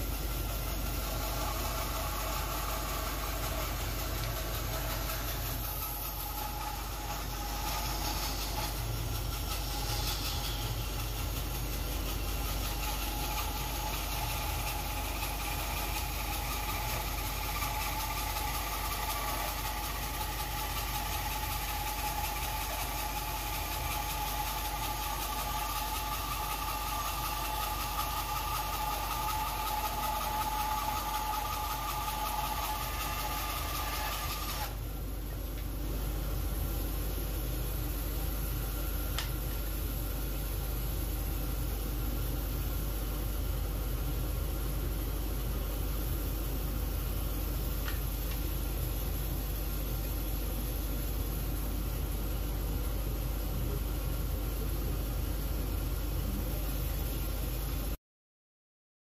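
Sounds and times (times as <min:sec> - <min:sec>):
bandsaw cutting wood: 0:21.3 - 0:34.8.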